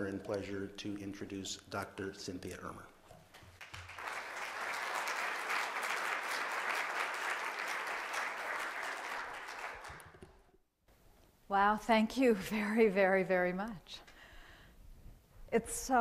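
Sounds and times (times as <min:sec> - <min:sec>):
audience applauding: 0:03.6 - 0:10.5.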